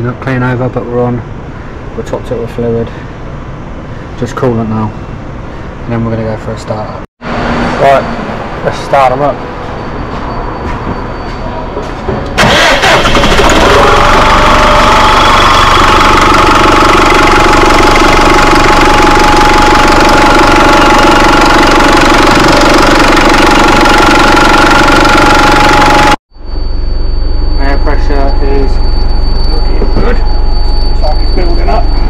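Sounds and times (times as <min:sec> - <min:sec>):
bus diesel engine running: 0:11.9 - 0:26.2
steady whine: 0:12.4 - 0:32.0.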